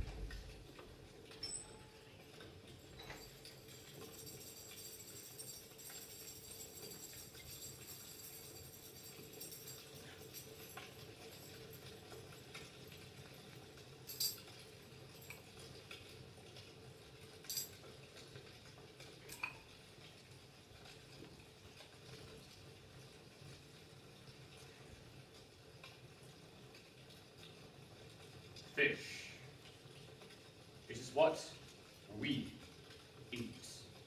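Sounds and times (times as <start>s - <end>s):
faint metallic jingling: 1.4s - 2.0s, 2.7s - 15.6s.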